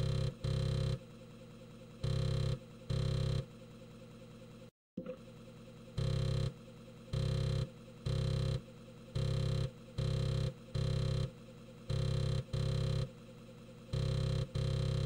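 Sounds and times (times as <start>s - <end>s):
floppy drive buzzing: 11.9s - 13.1s, 13.9s - 15.0s.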